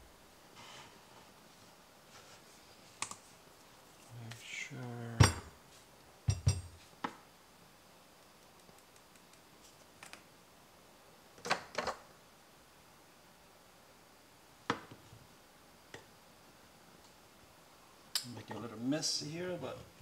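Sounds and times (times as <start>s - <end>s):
portafilter knocking on counter: 6.3s - 6.7s.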